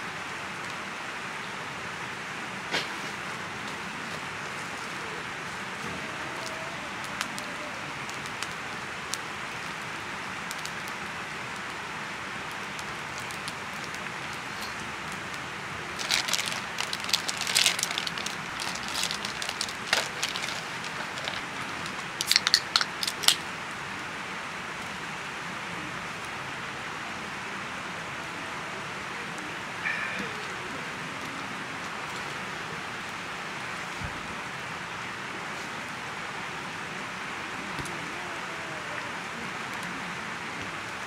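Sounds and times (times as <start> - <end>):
campfire crackling and popping: 2.7 - 24.0
packaging clicks and rustles: 15.9 - 23.5
plastic wrapping crinkling: 15.9 - 23.5.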